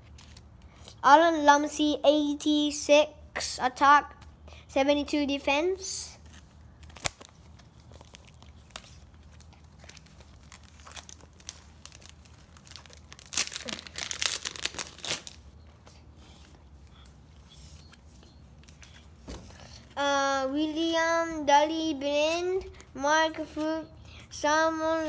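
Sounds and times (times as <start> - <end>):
cards clicking and rustling: 6.2 - 15.4
foil wrapper crinkling and tearing: 6.8 - 15.5.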